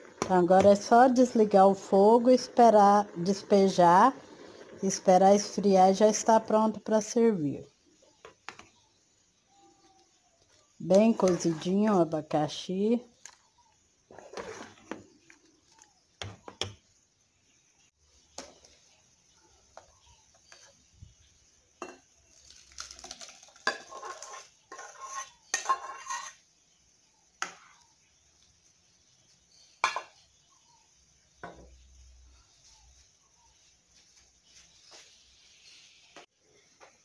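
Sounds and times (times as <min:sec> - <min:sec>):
scraping and pouring into a bowl: 0:11.1 - 0:11.9, 0:14.1 - 0:15.4, 0:22.3 - 0:26.4.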